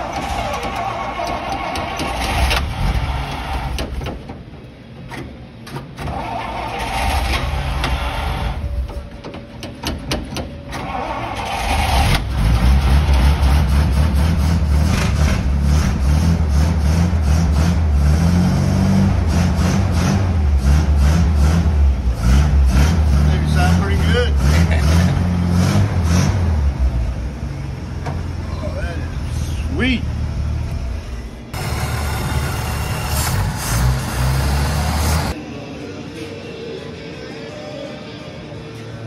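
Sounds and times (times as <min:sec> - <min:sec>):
truck engine cranking: 0:00.0 - 0:28.5
truck engine running: 0:10.5 - 0:35.4.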